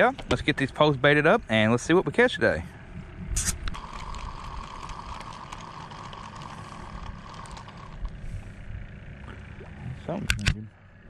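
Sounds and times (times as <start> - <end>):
fishing reel whirring and clicking: 3.4 - 8.2.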